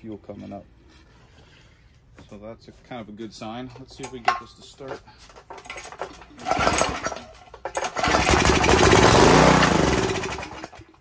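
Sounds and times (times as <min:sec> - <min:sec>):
engine pull-started: 0:05.6 - 0:11.0
small engine running: 0:06.4 - 0:11.0.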